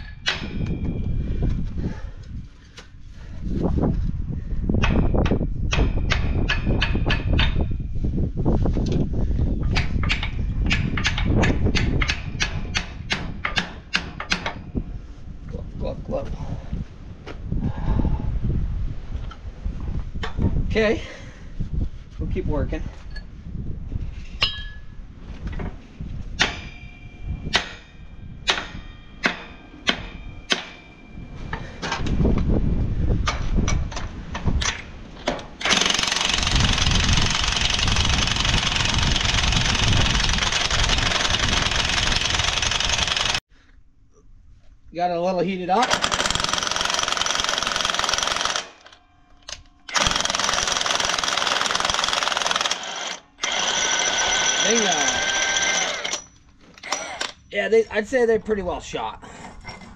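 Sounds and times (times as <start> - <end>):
hammer clanging on steel: 0.0 - 1.2, 24.4 - 24.9, 26.4 - 32.0.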